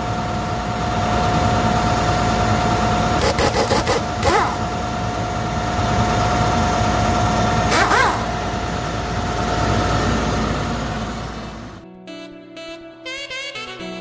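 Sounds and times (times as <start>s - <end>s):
pneumatic impact wrench whining: 3.1s - 4.8s, 7.6s - 8.5s.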